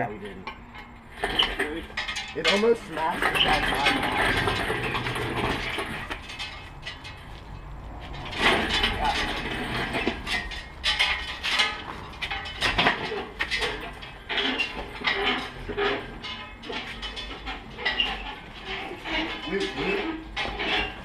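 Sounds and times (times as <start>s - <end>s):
casters rumbling on concrete: 0.0s - 21.0s
chains and steel clinking: 0.0s - 21.0s
metal clanks: 0.0s - 21.0s.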